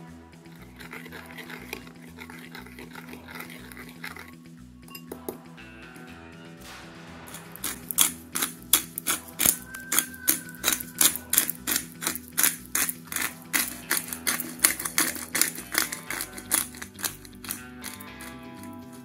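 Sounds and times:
background music: 0.0 - 19.0
pepper mill grinding clicks: 0.5 - 4.3, 7.3 - 19.0.

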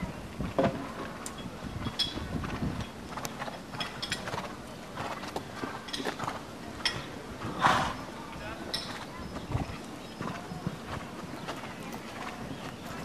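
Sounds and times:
horse hooves thudding: 0.0 - 13.0.

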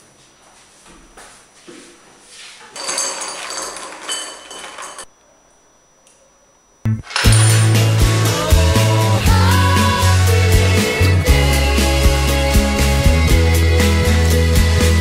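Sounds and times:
music with heavy beat: 6.9 - 15.0.

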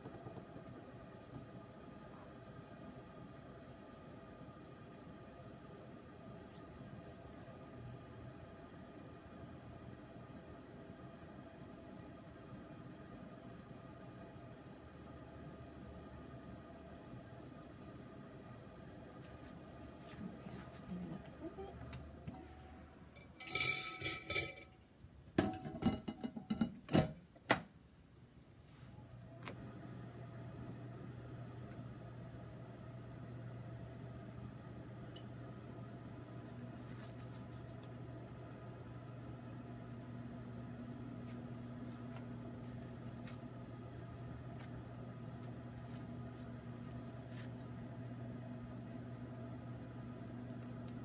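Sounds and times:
air fryer humming: 3.2 - 27.6, 29.2 - 51.0
ceramic clinking on glass: 23.2 - 24.7
lid clattering: 23.2 - 24.8, 25.4 - 27.2.

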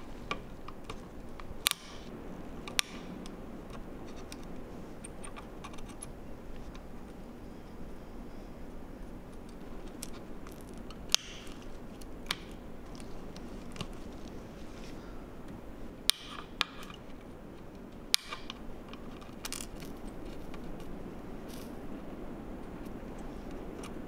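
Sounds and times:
steady low hiss: 0.0 - 24.0
flush cutters snipping: 0.2 - 2.1, 9.4 - 14.1, 16.1 - 20.9.

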